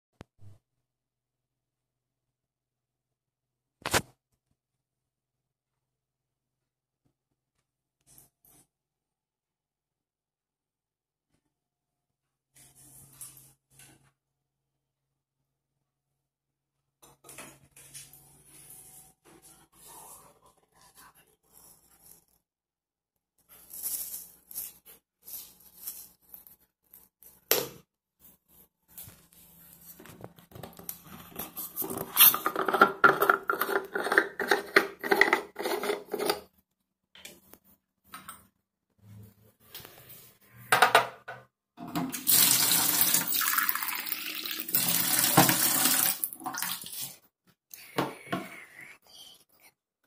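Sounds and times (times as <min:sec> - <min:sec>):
objects rustling and rattling: 0:28.2 - 0:36.6.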